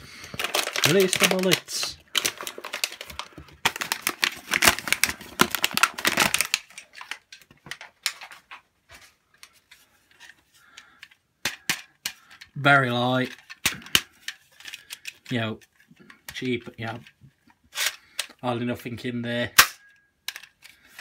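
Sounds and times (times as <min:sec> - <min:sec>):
cardboard tearing: 0:00.4 - 0:06.7.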